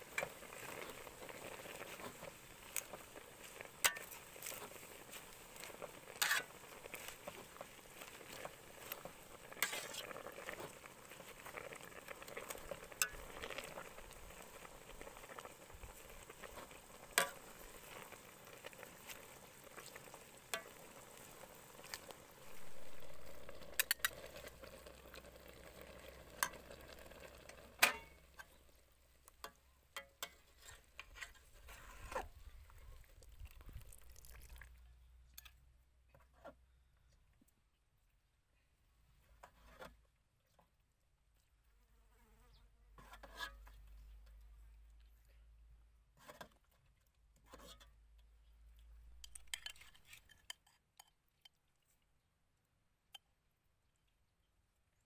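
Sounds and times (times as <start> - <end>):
metal ladle scraping pot: 0.1 - 28.6, 29.4 - 32.8, 43.0 - 43.8, 47.4 - 48.0, 49.2 - 51.2.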